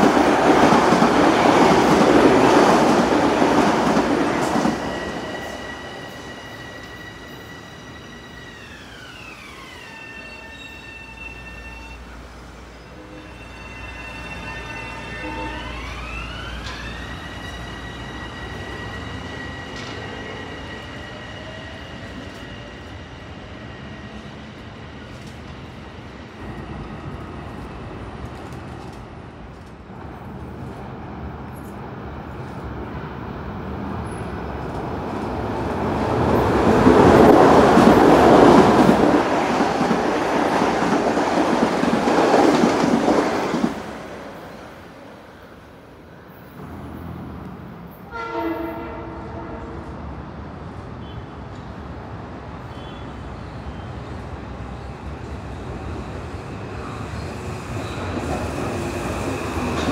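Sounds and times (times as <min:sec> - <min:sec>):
train passing at speed: 0:00.0 - 0:59.9
electric train motors whining: 0:06.1 - 0:12.0.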